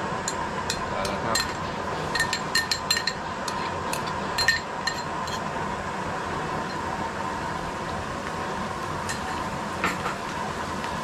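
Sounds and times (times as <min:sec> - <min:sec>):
steady hiss: 0:00.0 - 0:11.0
metal spoon clinking on ceramic bowl: 0:00.3 - 0:01.6, 0:02.2 - 0:05.4.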